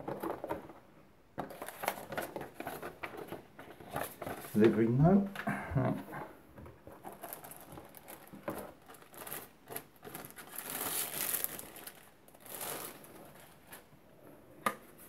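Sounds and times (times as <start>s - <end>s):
plastic wrapping crinkling: 1.4s - 5.2s, 6.8s - 13.9s.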